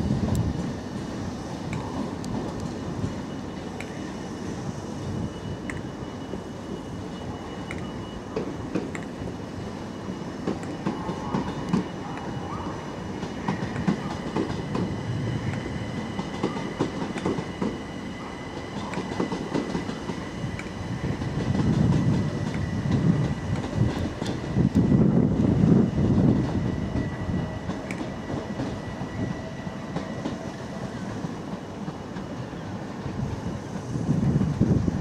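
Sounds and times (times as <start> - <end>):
train low rumble: 0.0 - 35.0
train wheels clicking over rail joints: 5.6 - 9.4, 10.0 - 12.4, 13.0 - 33.2.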